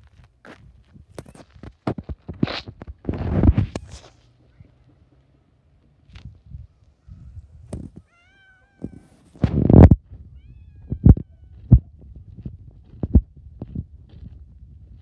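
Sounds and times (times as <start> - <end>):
cat meowing: 8.0 - 9.4, 10.3 - 11.9.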